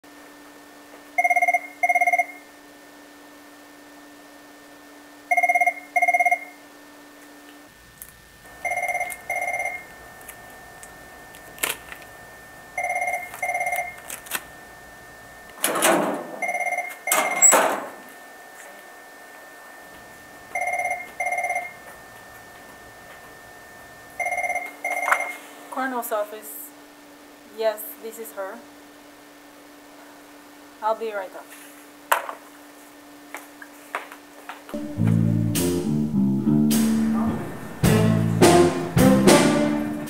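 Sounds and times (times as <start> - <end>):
telephone double ring: 8.6 - 9.8.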